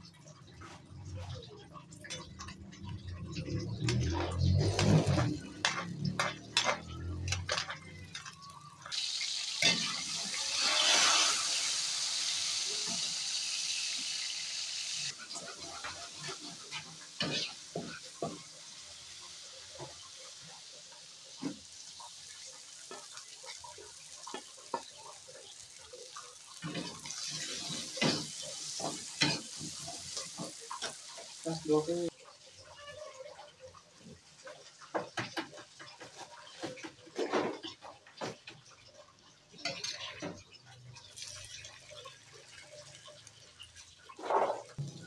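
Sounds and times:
garlic sizzling in hot oil: 2.2 - 45.0
metal spatula scraping wok: 3.4 - 12.5.

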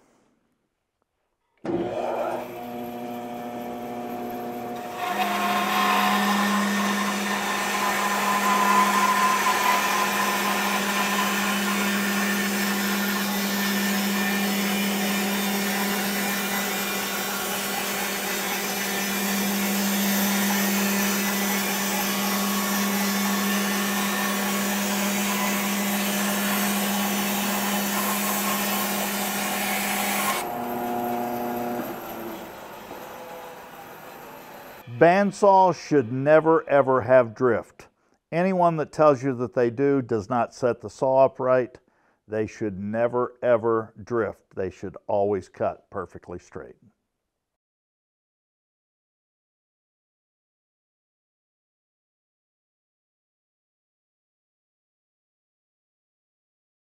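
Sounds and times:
bandsaw motor humming: 1.7 - 34.8
bandsaw blade cutting wood: 1.7 - 36.0.

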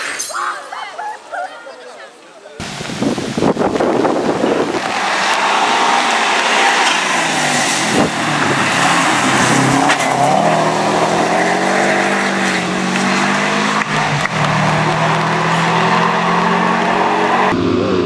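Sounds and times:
rally car engine passing: 4.5 - 18.0.

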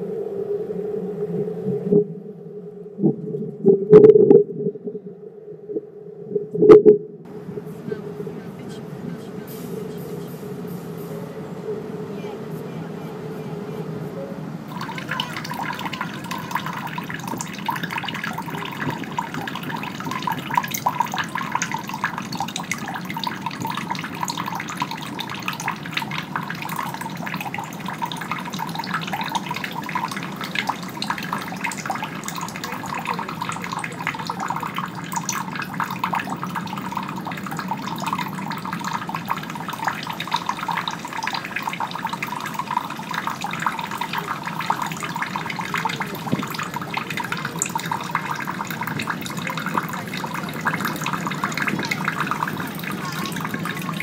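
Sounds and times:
running water with splashes: 14.7 - 54.0.

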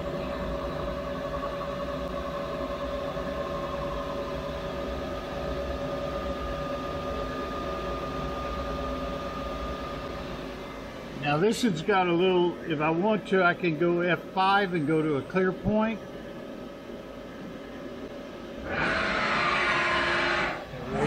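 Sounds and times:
low hum: 0.0 - 12.9
machine whine: 0.0 - 21.0.

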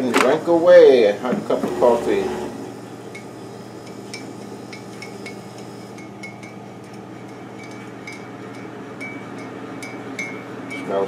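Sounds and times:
spoon clinking against mug: 3.9 - 10.9.

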